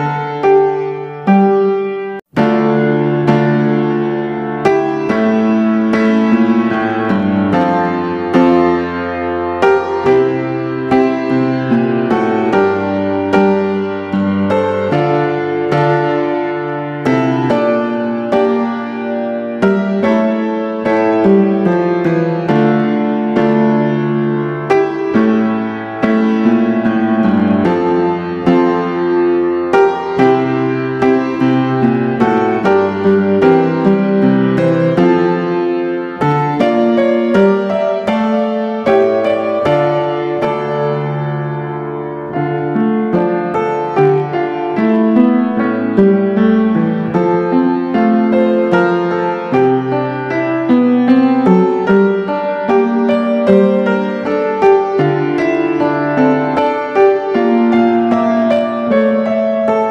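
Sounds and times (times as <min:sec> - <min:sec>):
piano music: 0:00.0 - 0:59.9.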